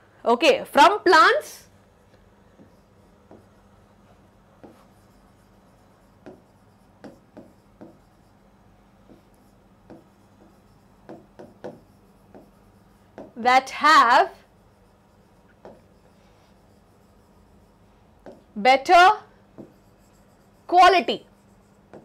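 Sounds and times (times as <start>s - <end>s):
stylus tapping on glass screen: 9.0s - 13.4s.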